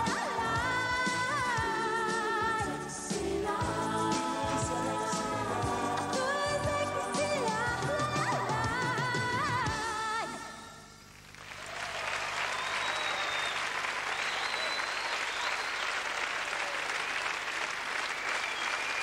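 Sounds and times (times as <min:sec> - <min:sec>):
pop song: 0:00.0 - 0:10.8
audience applauding: 0:11.2 - 0:19.0.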